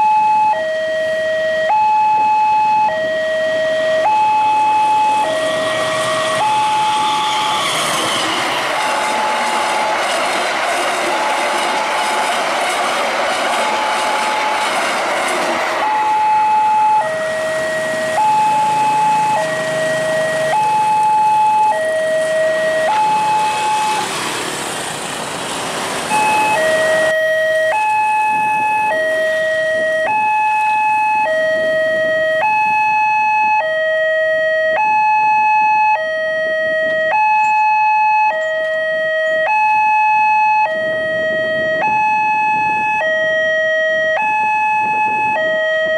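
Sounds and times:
two-tone crossing alarm: 0.0 - 24.2, 26.1 - 45.9
passing train running noise: 2.2 - 33.4, 38.4 - 45.9.

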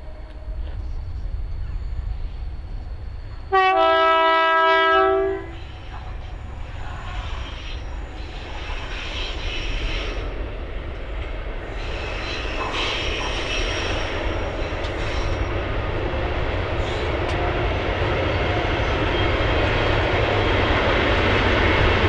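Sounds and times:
train wheels running: 0.0 - 22.0
two-tone locomotive horn: 3.5 - 5.7.

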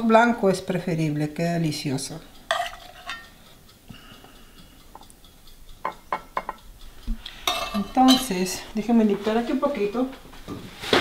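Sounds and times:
metal ladle clinking on pot: 2.5 - 3.3, 5.9 - 6.6, 7.4 - 8.4.

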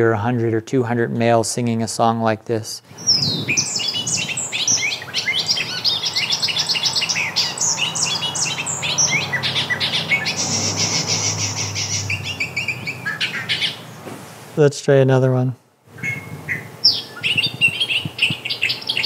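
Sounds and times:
bird song: 2.9 - 13.9, 16.0 - 19.0.

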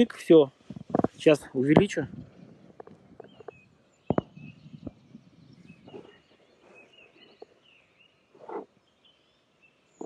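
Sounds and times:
high thin bird calls: 2.4 - 10.0.

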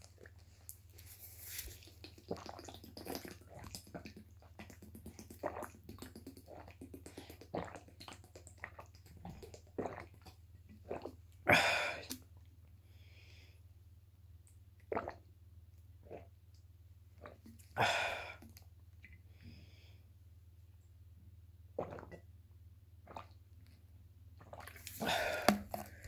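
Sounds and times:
person gulping water: 0.0 - 12.5, 14.4 - 19.3, 21.7 - 22.3, 23.0 - 23.7, 24.4 - 26.0
wet mouth clicks: 1.7 - 10.3, 24.5 - 26.0.

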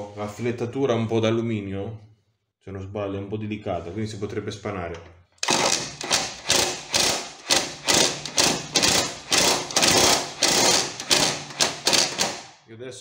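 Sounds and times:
impact wrench bursts: 5.4 - 12.6.

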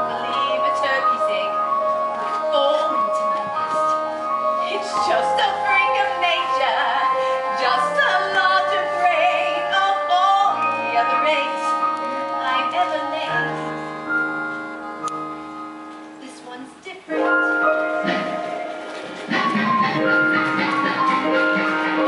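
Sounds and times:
woman singing: 0.0 - 1.6, 2.4 - 3.6, 4.6 - 13.5
keyboard chords: 0.0 - 22.0.

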